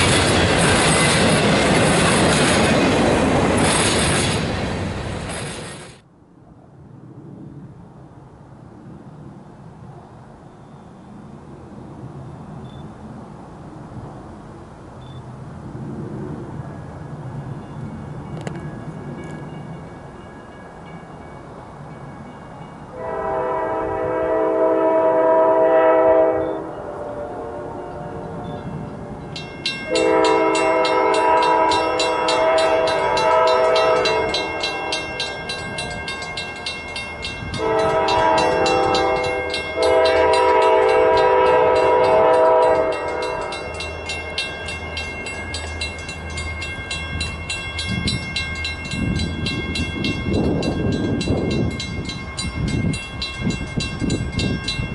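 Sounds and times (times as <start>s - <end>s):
crossing bell ringing: 16.6s - 23.6s, 27.8s - 54.9s
locomotive air horn: 23.0s - 28.5s, 29.9s - 35.4s, 37.5s - 43.8s.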